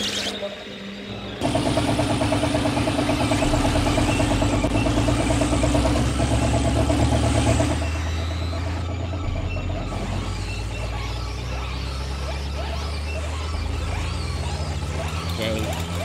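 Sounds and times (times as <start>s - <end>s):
constant low hum: 0.0s - 16.0s
pulsing mechanical drone: 0.0s - 16.0s.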